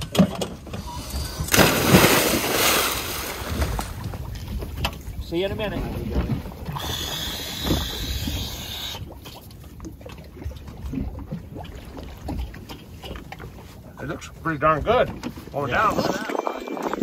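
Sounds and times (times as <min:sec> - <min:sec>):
wind rumbling on microphone: 0:01.0 - 0:09.2, 0:14.6 - 0:17.0.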